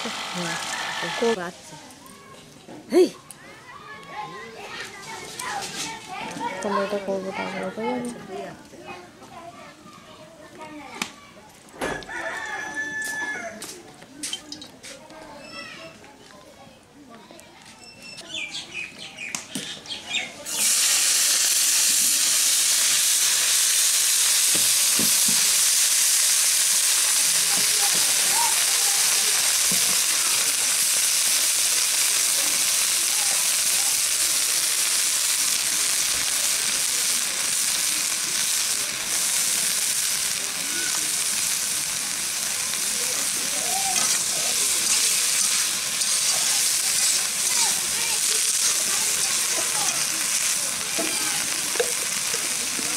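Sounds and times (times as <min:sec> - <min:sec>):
vegetables sizzling in hot oil: 0:00.0 - 0:03.1, 0:20.4 - 0:52.9
metal spatula stirring: 0:44.0 - 0:47.6.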